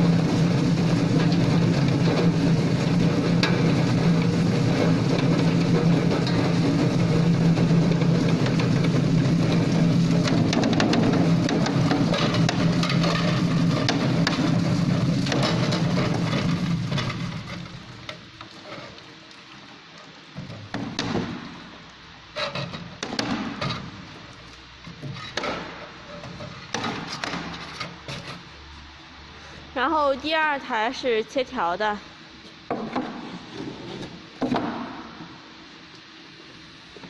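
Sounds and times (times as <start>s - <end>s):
potatoes rattling in drum: 0.0s - 18.1s
machine motor hum: 0.0s - 18.5s.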